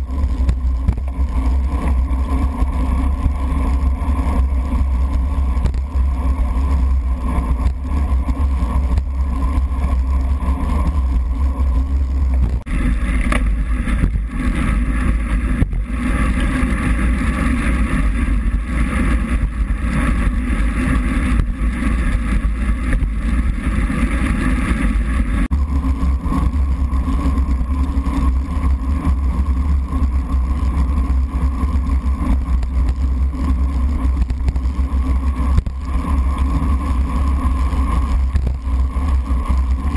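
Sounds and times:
bicycle road rumble: 0.0s - 39.9s.

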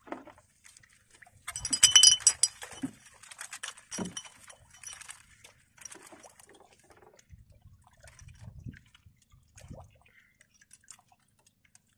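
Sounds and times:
metal trap clinking and rattling: 1.5s - 2.9s, 3.9s - 5.1s
light clicks and rustles: 1.5s - 6.4s.

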